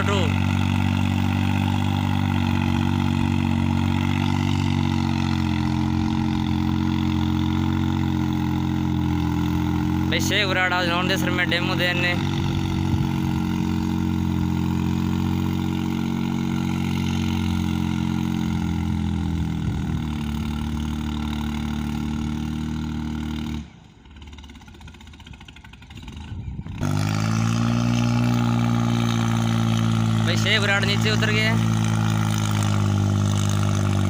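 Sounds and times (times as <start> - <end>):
tractor diesel engine running: 0.0 - 34.0.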